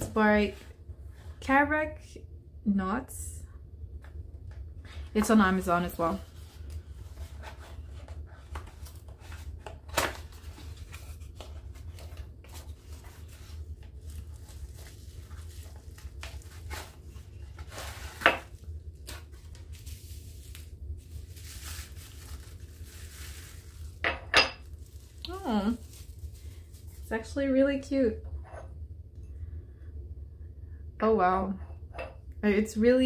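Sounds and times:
steady low hum: 0.0 - 33.0
card and plastic rustling: 4.9 - 27.3.

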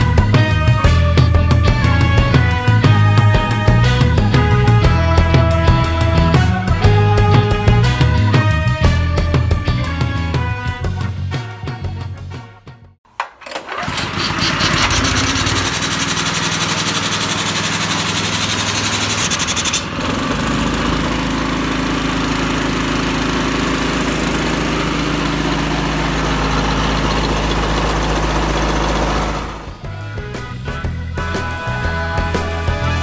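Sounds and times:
petrol engine running: 13.2 - 33.0.

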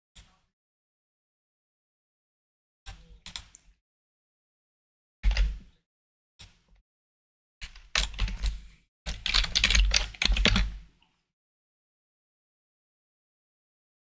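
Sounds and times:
computer keyboard typing: 5.2 - 5.6, 7.6 - 10.8.

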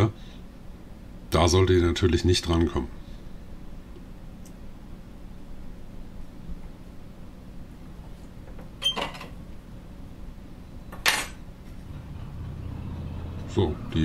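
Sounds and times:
low hum: 11.6 - 14.0.

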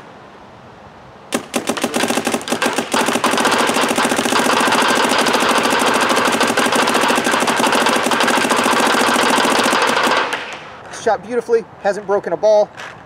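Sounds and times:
paintball marker rapid firing: 1.3 - 10.7.

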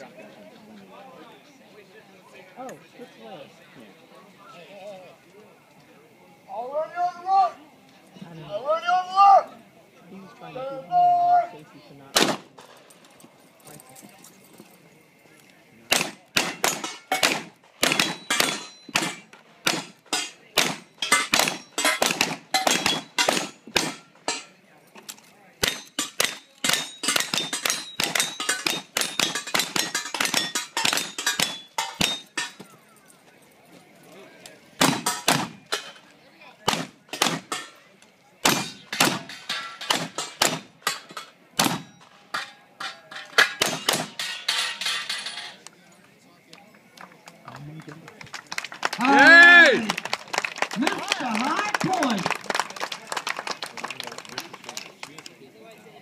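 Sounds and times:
black-powder gunshots: 12.1 - 12.5, 15.9 - 24.1, 25.6 - 32.3, 34.8 - 35.8, 36.7 - 37.6, 38.4 - 40.8, 41.6 - 42.0, 43.6 - 44.2
rapid gunshots with ringing tail: 15.9 - 20.0
steel targets ringing: 16.4 - 24.6, 25.6 - 32.6, 38.5 - 45.6.

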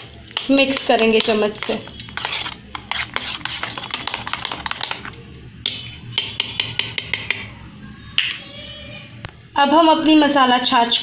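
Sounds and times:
metal spoon scraping steel bowl: 0.6 - 5.2.

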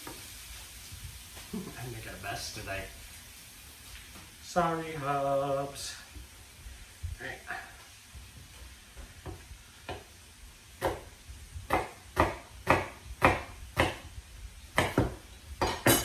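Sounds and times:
knife chopping on wooden board: 9.2 - 10.1, 10.8 - 11.1, 11.7 - 14.1, 14.8 - 16.0.

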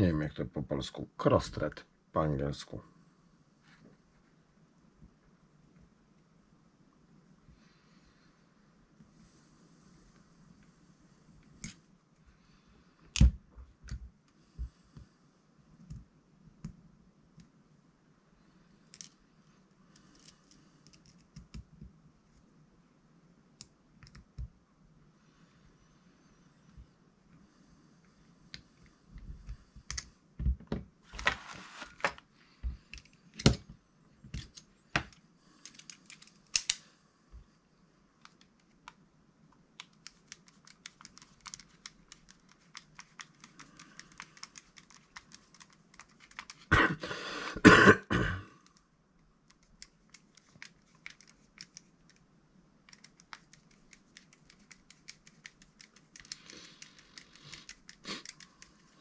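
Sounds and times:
small parts clicking and knocking: 19.9 - 21.8, 34.3 - 36.8, 38.2 - 46.7, 48.6 - 59.0.

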